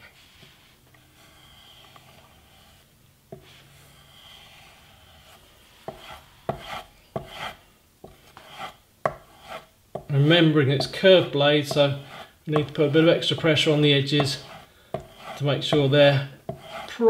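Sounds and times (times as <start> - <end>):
blade scraping on a strop: 16.5 - 17.0.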